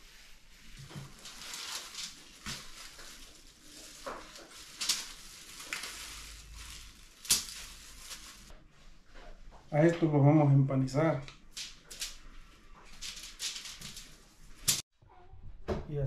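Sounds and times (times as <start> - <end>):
foil crinkling: 0.5 - 8.5, 11.5 - 12.2, 12.8 - 14.8.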